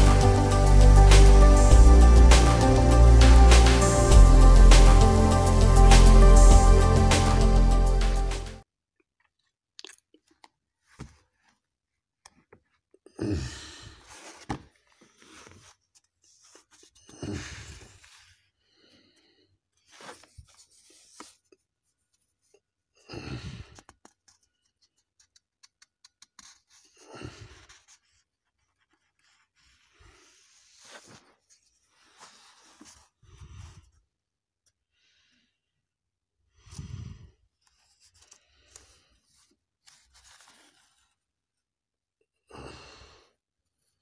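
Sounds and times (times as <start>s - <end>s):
paper pages rustling: 10.8s - 12.8s, 14.0s - 18.5s, 19.7s - 22.3s, 23.8s - 33.2s, 37.6s - 41.2s.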